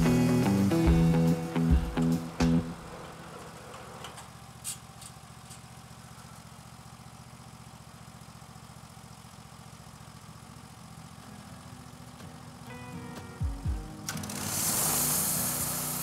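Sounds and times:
sawmill machine hum: 0.0 - 4.5, 11.2 - 16.0.

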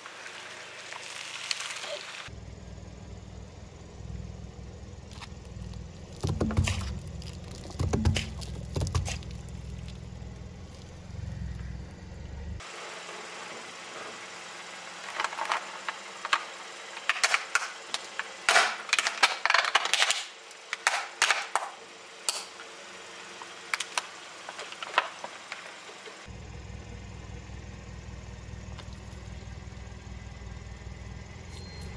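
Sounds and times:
car engine rumble: 2.3 - 31.9
plastic mask cracking under tyre: 5.1 - 11.6.

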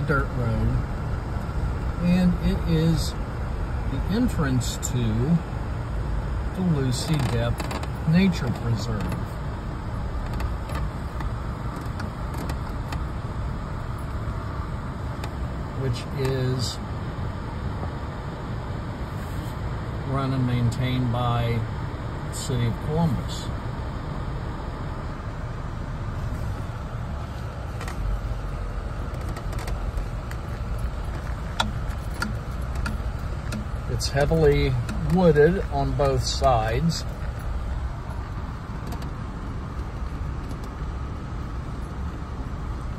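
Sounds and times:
car rumbling on dirt road: 0.0 - 42.9
short clicks and knocks: 29.1 - 37.4.

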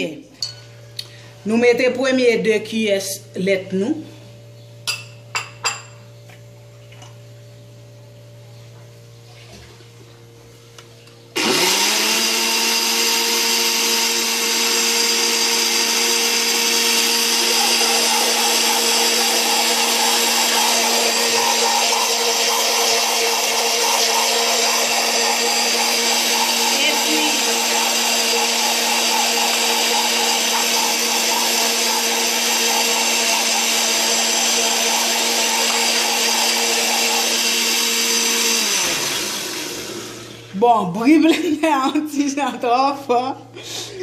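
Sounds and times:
electric blender motor running: 11.3 - 40.6.

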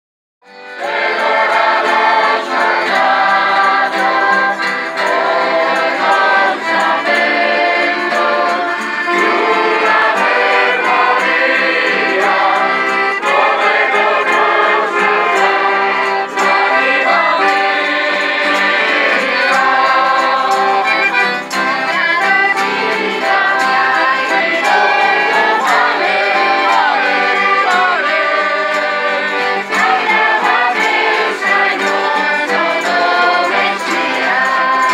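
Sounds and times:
accordion: 0.4 - 34.9
acoustic guitars: 0.5 - 34.9
group singing in chorus: 0.7 - 34.9.

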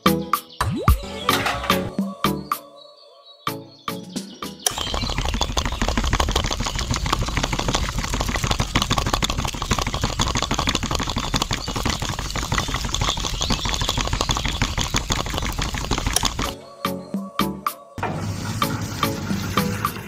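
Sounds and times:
toy concrete mixer running: 4.7 - 16.6.

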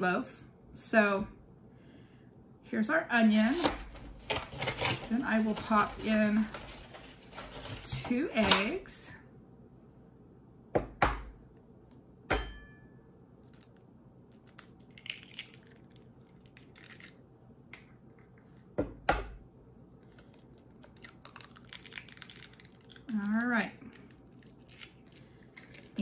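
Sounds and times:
shell crackling apart: 13.4 - 18.4, 20.0 - 26.0.

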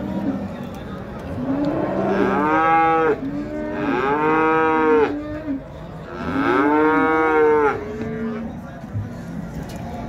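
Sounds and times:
cattle mooing: 1.4 - 8.4.

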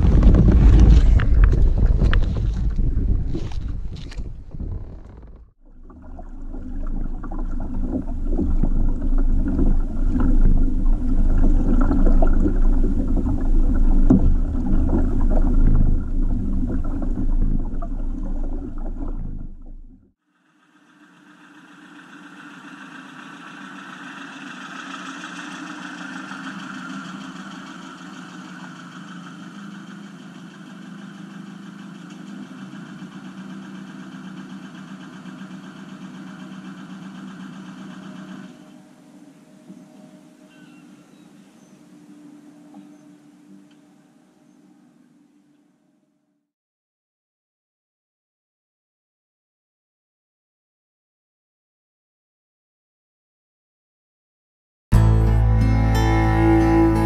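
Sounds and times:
wind buffeting microphone: 0.0 - 5.5
water noise: 0.0 - 44.2, 54.9 - 57.0
steady hum: 5.7 - 45.5, 54.9 - 57.0.

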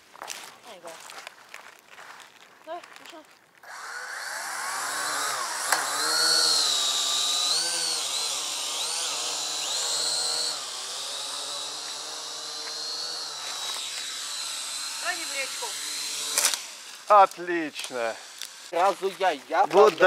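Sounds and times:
quadcopter motors whining: 3.6 - 19.4.

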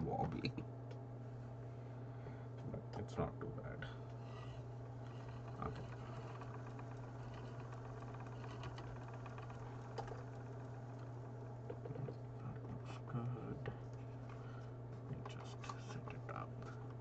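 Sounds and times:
spinning wheel running: 4.1 - 13.2.

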